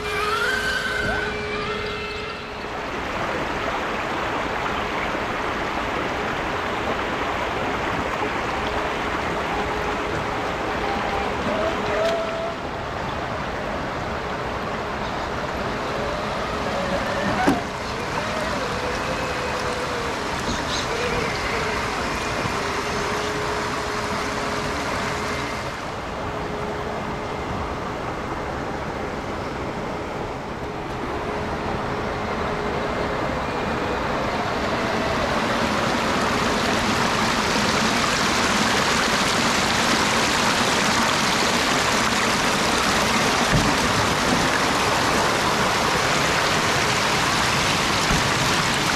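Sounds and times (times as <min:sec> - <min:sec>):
thin electric motor whine: 0:00.0 - 0:02.9, 0:15.6 - 0:40.8
creek water rushing over rocks: 0:00.0 - 0:48.9.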